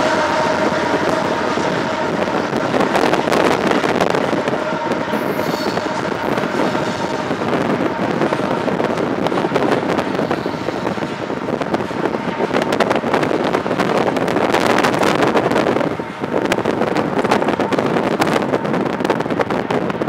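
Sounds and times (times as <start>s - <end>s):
train wheels clattering over rail joints: 0.0s - 20.0s
wind noise on microphone: 0.0s - 20.0s.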